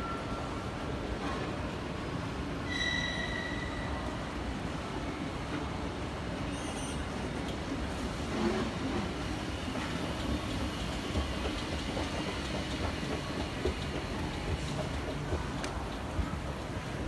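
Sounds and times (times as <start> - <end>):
moving walkway mechanical rumble: 8.7 - 17.0.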